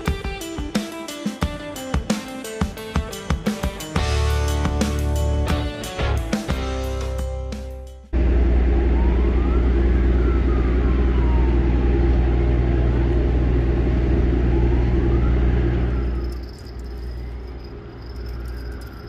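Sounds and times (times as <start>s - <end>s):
siren wailing: 8.2s - 13.5s, 14.1s - 19.0s.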